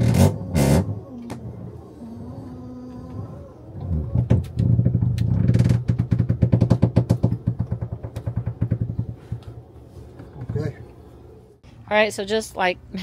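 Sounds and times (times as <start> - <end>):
machine engine pulsing: 0.0 - 5.2.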